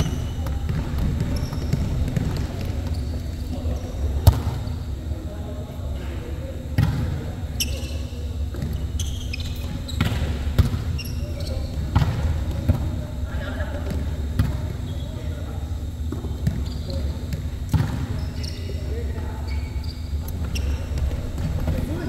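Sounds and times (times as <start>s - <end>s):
volleyball hits: 4.2s - 4.7s.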